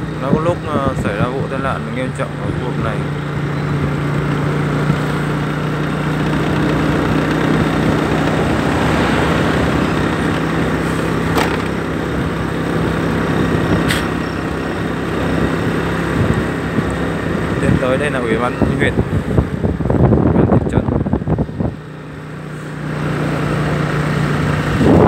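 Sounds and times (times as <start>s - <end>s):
motorbike engine humming: 0.0s - 25.0s
road and wind noise: 0.0s - 25.0s.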